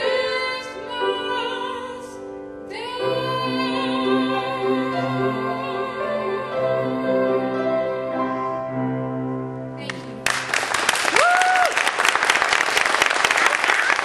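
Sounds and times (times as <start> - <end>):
woman singing with vibrato: 0.0 - 8.4
piano chords: 0.0 - 10.9
audience applause: 10.2 - 14.0
listener cheering: 11.1 - 12.0.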